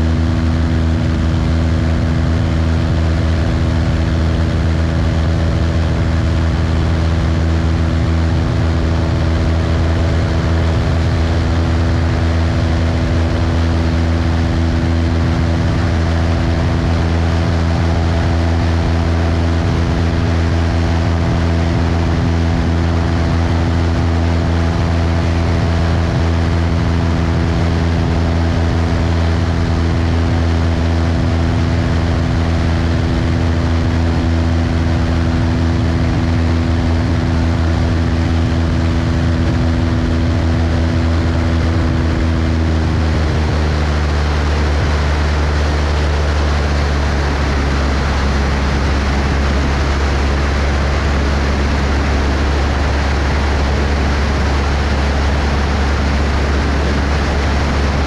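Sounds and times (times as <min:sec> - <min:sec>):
propeller plane engine droning: 0:00.0 - 0:58.0.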